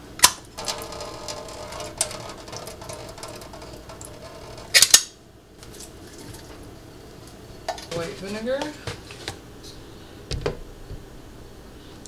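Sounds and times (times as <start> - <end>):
metal clatter: 0.5 - 6.7
syrup draining into steel sink: 0.6 - 4.8.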